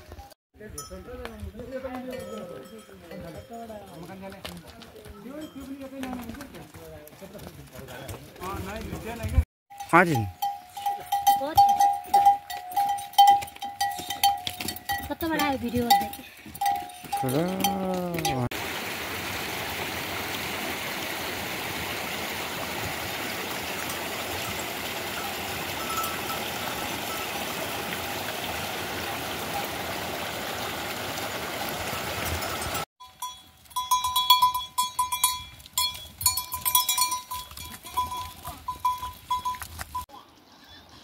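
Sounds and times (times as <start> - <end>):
goat bells clanking: 0.0 - 18.5, 23.9 - 28.2, 32.2 - 40.4.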